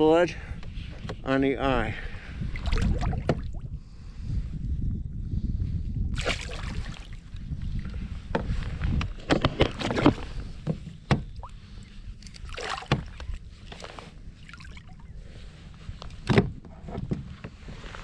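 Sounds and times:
water splashing: 6.2s - 7.2s, 12.2s - 13.4s, 14.4s - 15.1s.

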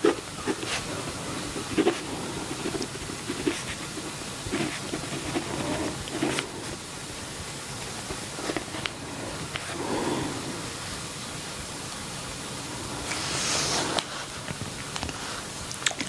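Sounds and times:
pen scratching on paper: 0.0s - 6.8s, 8.1s - 10.5s
steady hiss: 0.0s - 16.0s.

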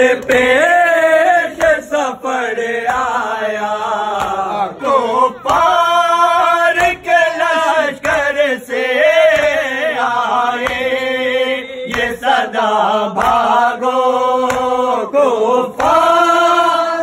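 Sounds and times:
men chanting a lament: 0.0s - 17.0s
hands slapping chests: 0.1s - 0.8s, 1.4s - 3.4s, 4.1s - 4.6s, 5.2s - 11.1s, 11.9s - 12.5s, 13.1s - 15.0s, 15.6s - 16.8s.

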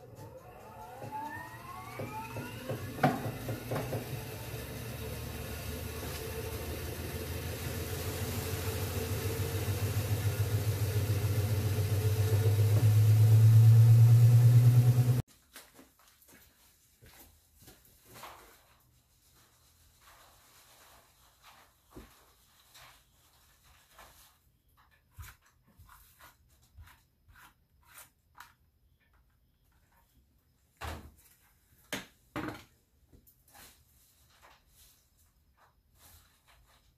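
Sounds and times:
washer drum spinning: 0.0s - 15.2s.

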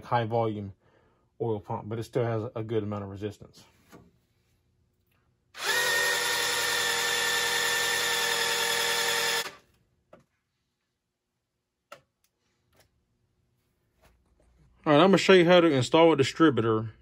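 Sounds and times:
cordless drill whining: 5.6s - 9.7s.

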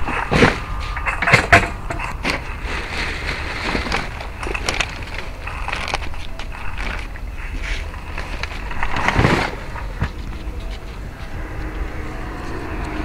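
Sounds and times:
plastic bins knocking and rattling: 0.0s - 7.2s
low rumble: 0.0s - 13.0s.

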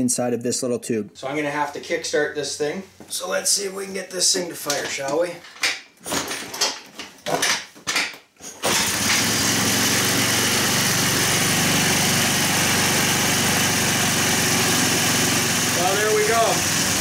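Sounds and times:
engine kickstart attempts: 8.6s - 11.7s
engine running at high idle: 8.7s - 17.0s.

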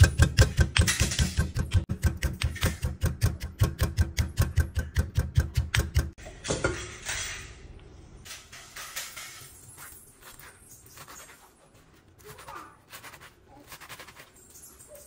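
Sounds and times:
stone pestle pounding in mortar: 0.0s - 6.2s.

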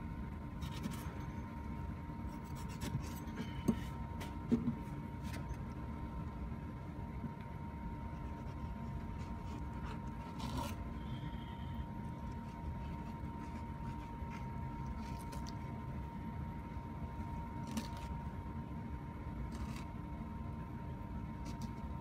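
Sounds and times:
steady hum: 0.0s - 22.0s
knife scraping fish backbone: 0.6s - 1.2s, 2.2s - 4.0s, 8.1s - 15.7s, 19.5s - 19.9s.

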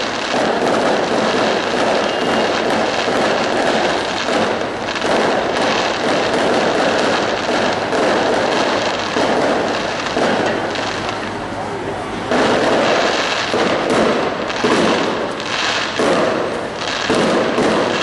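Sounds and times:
fireworks crackling pops: 0.0s - 18.0s.

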